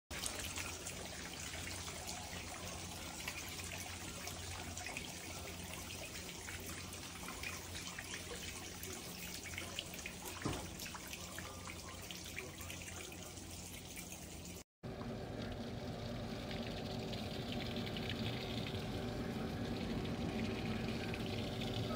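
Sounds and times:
water trickling down rain chain: 0.1s - 14.6s, 15.3s - 21.9s
low hum: 14.9s - 21.9s.

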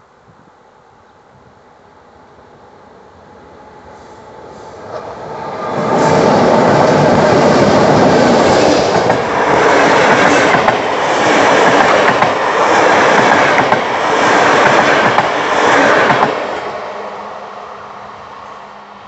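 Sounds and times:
train wheels clicking over rail joints: 8.5s - 16.5s.

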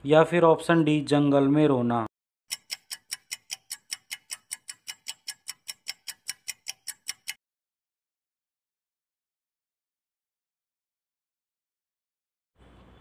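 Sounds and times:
clock ticking fast: 2.5s - 7.4s.

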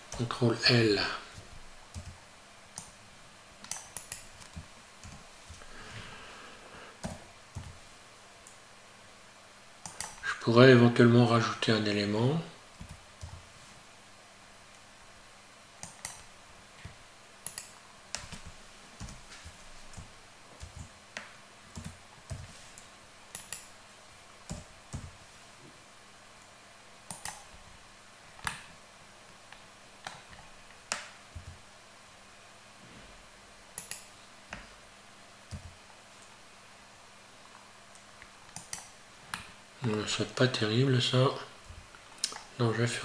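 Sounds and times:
computer keyboard keystrokes: 1.9s - 2.2s, 3.6s - 5.6s, 9.8s - 10.2s, 15.8s - 16.3s, 17.4s - 19.2s, 19.9s - 20.9s, 21.8s - 23.7s, 27.1s - 27.5s, 33.8s - 34.1s, 38.5s - 38.9s
mouse clicks: 3.6s - 5.6s, 9.8s - 10.2s, 15.8s - 16.3s, 17.4s - 19.2s, 20.0s - 23.7s, 27.1s - 27.5s, 33.8s - 34.6s, 38.5s - 39.5s.

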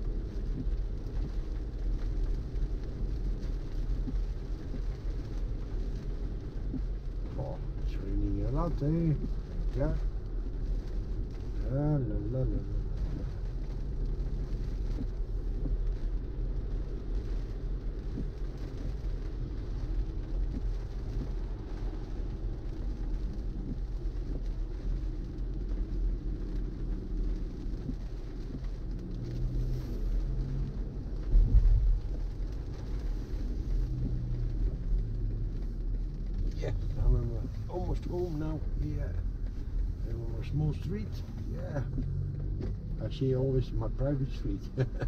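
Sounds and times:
road and tyre rumble: 0.0s - 45.0s.

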